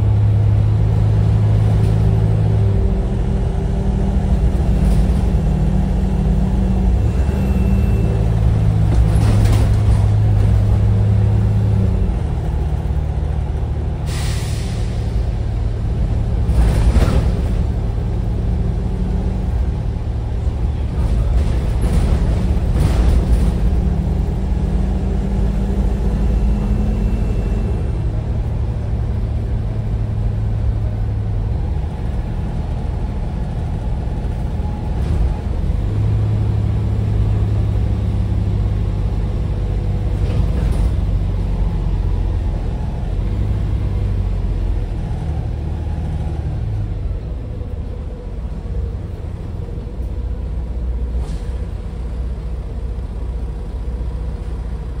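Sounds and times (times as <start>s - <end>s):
bus engine from inside: 0.0s - 55.0s
short air hisses: 14.0s - 15.1s.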